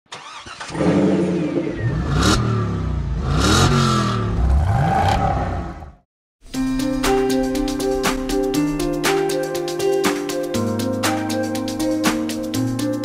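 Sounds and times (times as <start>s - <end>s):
car engine revving: 0.2s - 6.0s.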